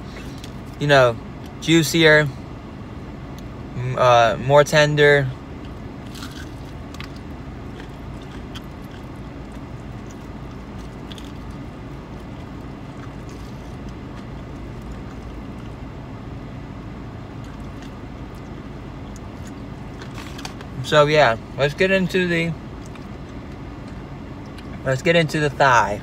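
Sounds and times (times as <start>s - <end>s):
low hum of parked car: 0.0s - 26.0s
chewing and biting: 5.6s - 15.9s, 17.4s - 20.8s, 22.8s - 24.8s.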